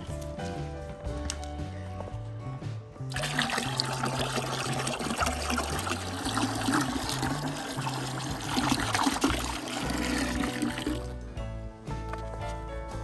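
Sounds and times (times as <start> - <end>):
liquid splashing and frothing: 3.1 - 11.2
water pouring into a bucket: 3.1 - 11.2.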